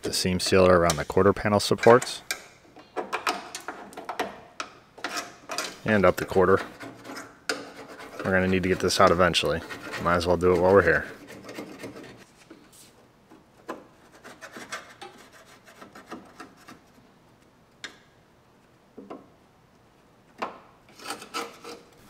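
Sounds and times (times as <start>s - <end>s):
hand tool scraping metal seams: 5.0s - 12.3s, 13.6s - 16.9s, 20.9s - 22.0s.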